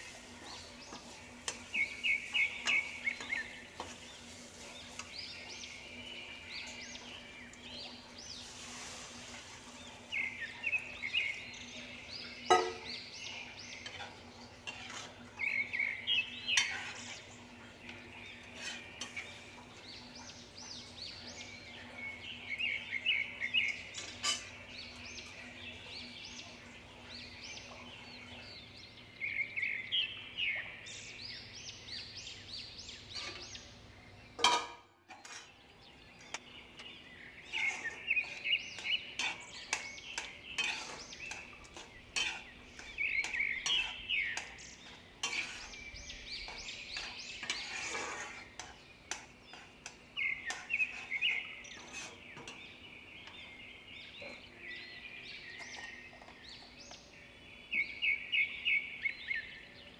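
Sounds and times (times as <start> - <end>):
bird chirping: 0.0 - 59.9
spatula clinking on iron pan: 12.4 - 13.0, 23.9 - 24.6, 34.4 - 35.6, 37.5 - 51.1.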